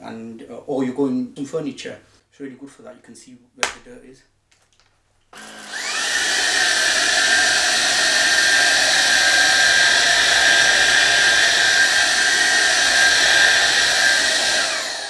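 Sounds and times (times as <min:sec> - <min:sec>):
stick vacuum running on carpet: 0:05.4 - 0:15.0.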